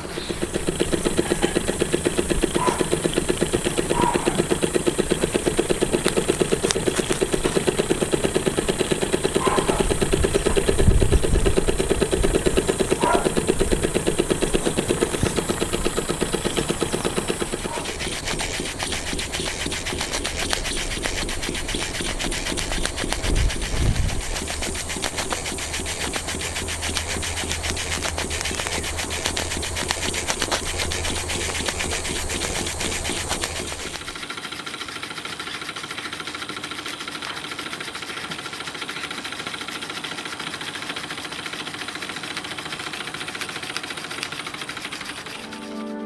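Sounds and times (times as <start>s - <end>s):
steam engine beat: 0.0s - 34.6s, 44.7s - 46.0s.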